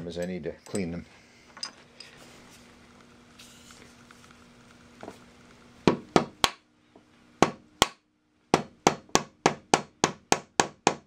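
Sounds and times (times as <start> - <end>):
hammer tapping wooden dowel: 5.9 - 6.6, 8.6 - 11.0.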